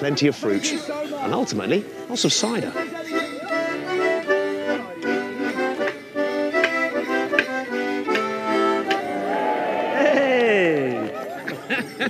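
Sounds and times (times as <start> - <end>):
button accordions playing folk tune: 0.0 - 9.3.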